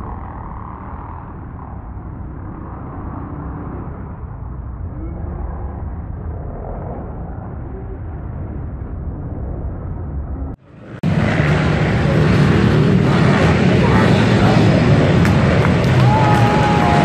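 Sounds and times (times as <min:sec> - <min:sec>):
pit bike engines revving: 0:10.6 - 0:17.0.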